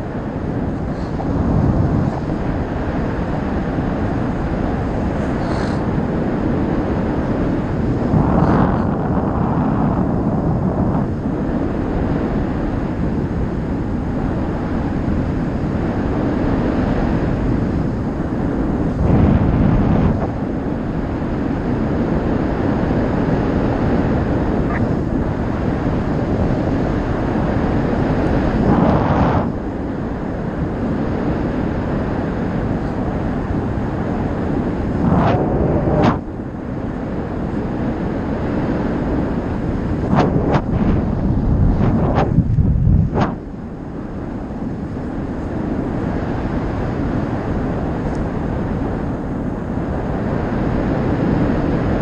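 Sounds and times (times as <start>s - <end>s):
wind rushing over microphone: 0.0s - 52.0s.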